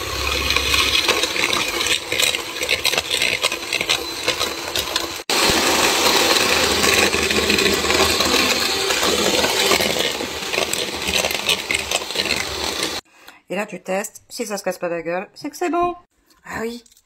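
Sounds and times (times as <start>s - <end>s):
electric mixer motor: 0.0s - 13.0s.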